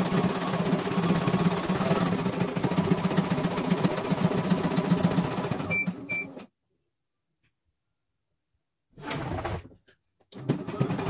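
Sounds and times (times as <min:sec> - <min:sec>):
embroidery machine stitching: 0:00.0 - 0:06.5, 0:10.4 - 0:11.0.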